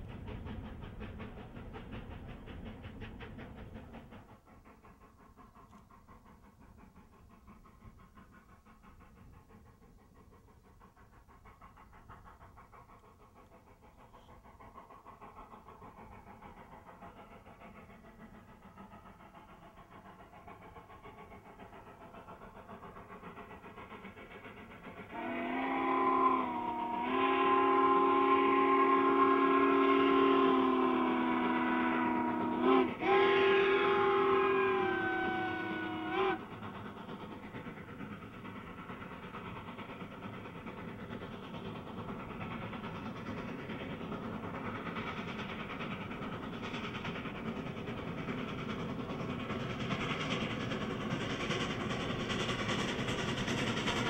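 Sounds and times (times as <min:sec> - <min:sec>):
distant steam locomotive chuffing: 0:00.0 - 0:54.0
steam whistle blast: 0:25.1 - 0:36.4.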